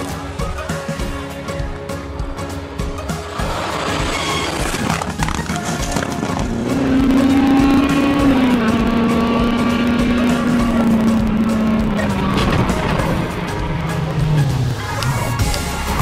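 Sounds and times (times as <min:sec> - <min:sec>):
car engine at high revs: 0:03.4 - 0:16.0.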